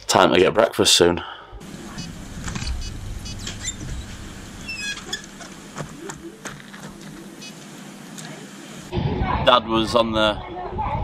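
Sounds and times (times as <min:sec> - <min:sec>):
birds chirping: 0:01.6 - 0:08.9
low uneven rumble: 0:01.6 - 0:09.4.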